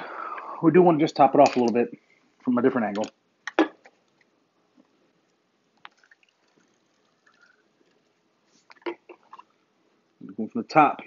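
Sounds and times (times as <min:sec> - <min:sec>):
liquid dripping: 0:05.3 - 0:09.6
wet squishes: 0:05.8 - 0:09.6.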